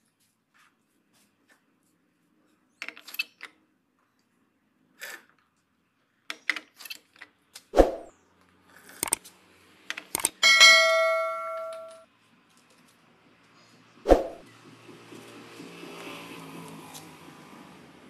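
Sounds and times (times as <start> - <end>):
sharp thumps: 7.8 - 8.1, 14.1 - 14.4
clicks: 10.1 - 10.4, 11.4 - 12.0
bell ding: 10.4 - 12.0.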